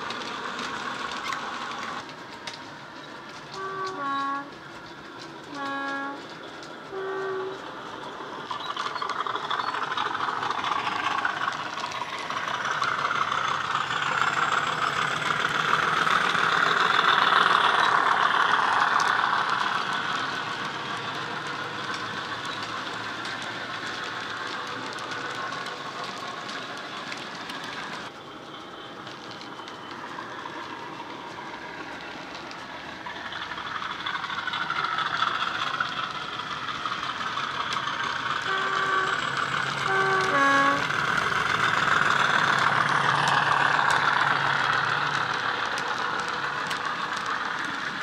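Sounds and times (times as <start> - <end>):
diesel engine sound: 0.0 - 48.0
wagons rolling: 0.0 - 48.0
two-tone diesel horn: 3.5 - 4.6, 5.5 - 6.2, 6.9 - 7.6, 38.4 - 40.9.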